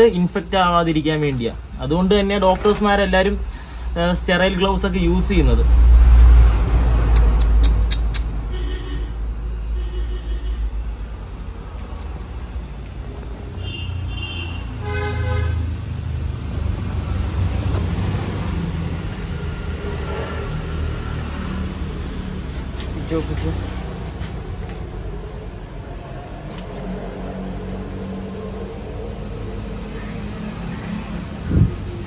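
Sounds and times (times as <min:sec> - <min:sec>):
road traffic rumble: 0:00.0 - 0:32.0
vehicle horn toots: 0:08.4 - 0:10.8, 0:13.6 - 0:15.6.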